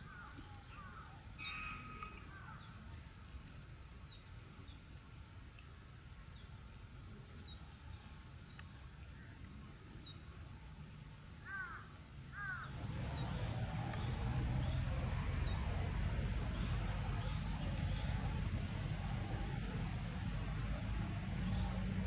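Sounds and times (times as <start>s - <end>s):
low background noise: 0.0s - 22.0s
small birds chirping: 0.0s - 22.0s
crow cawing: 11.4s - 12.7s.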